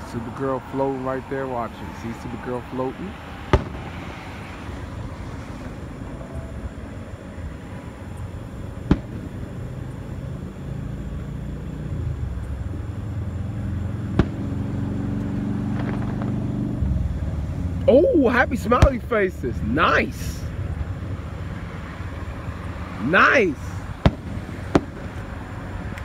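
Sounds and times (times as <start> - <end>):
low rumble: 0.0 - 26.0
fireworks bursting bangs: 3.4 - 4.8, 8.7 - 10.1, 14.0 - 14.9, 15.6 - 16.8, 18.4 - 20.4, 23.0 - 26.0.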